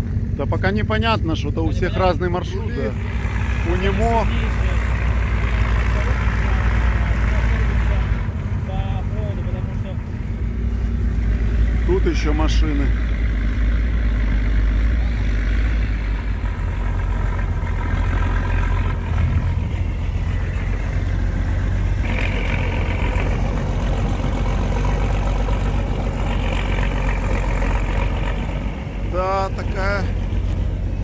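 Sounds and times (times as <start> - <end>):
off-road vehicle engines idling: 0.0 - 31.0
rough higher engine sound: 0.0 - 31.0.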